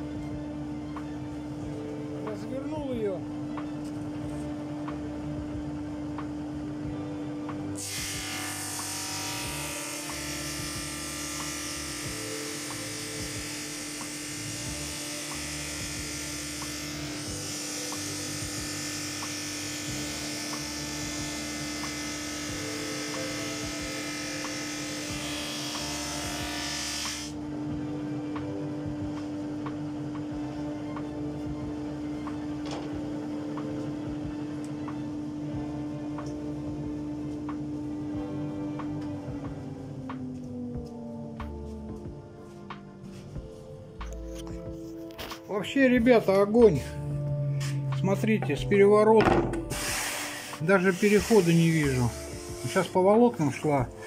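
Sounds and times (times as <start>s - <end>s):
drum sander humming: 0.0s - 43.5s, 46.0s - 54.0s
sanding hiss: 49.7s - 53.0s.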